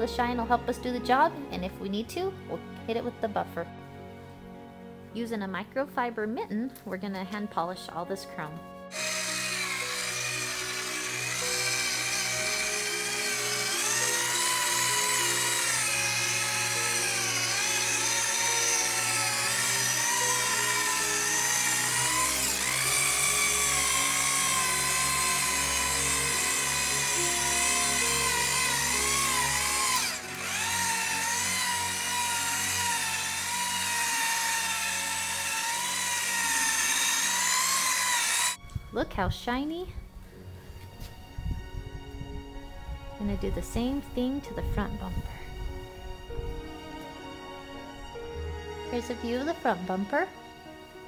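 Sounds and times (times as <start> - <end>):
background music: 0.0 - 51.0
power tool motor whine: 8.9 - 38.6.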